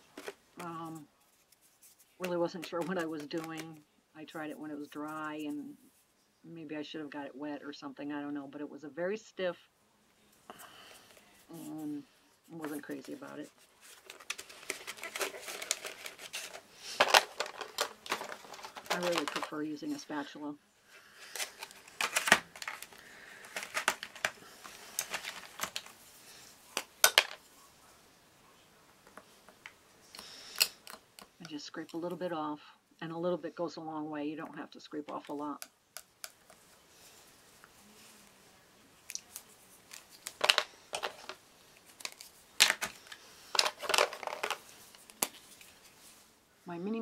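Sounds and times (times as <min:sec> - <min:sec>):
items rustling in plastic tray: 0:00.0 - 0:05.2, 0:12.5 - 0:27.4, 0:39.1 - 0:46.3
plastic clicks and clatters: 0:14.0 - 0:19.6, 0:21.4 - 0:25.9, 0:26.8 - 0:27.4, 0:39.1 - 0:45.4.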